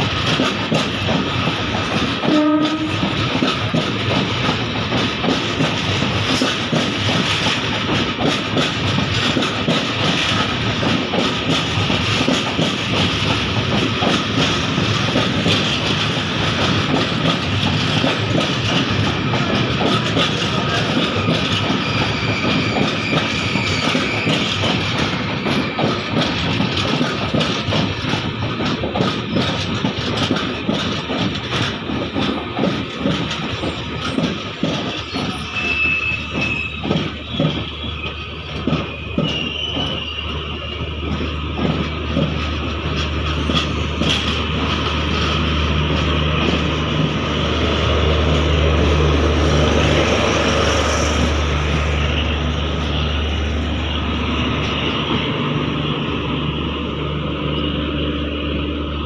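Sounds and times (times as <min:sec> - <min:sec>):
train wheels clattering over rail joints: 0:00.0 - 0:58.2
electric locomotive hum: 0:00.0 - 0:59.0
high wheel squeals: 0:20.6 - 0:26.2, 0:33.6 - 0:41.3, 0:43.3 - 0:44.4.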